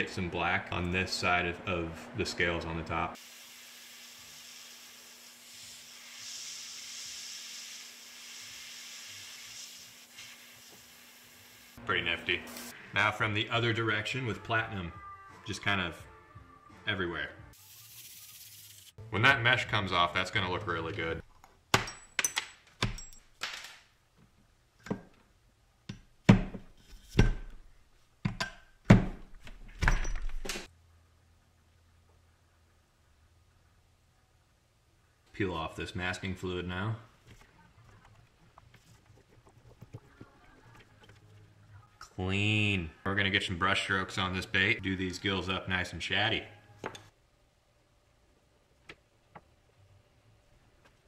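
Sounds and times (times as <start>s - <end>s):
airbrush spraying hiss: 4.2s - 11.6s, 17.6s - 19.0s.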